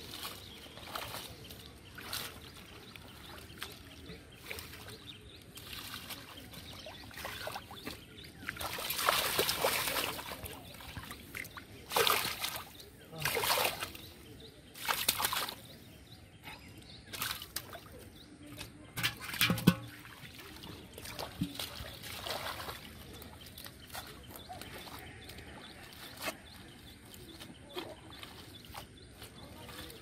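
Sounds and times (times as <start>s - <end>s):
splashing in shallow muddy water: 0.0s - 30.0s.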